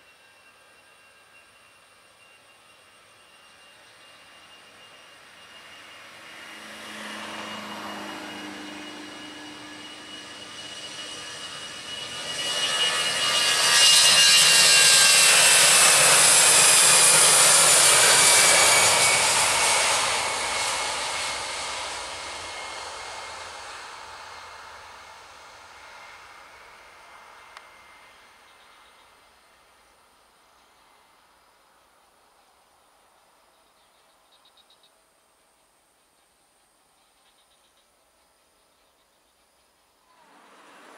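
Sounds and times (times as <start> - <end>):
jet engines at takeoff: 0.0 - 37.8, 38.6 - 40.9.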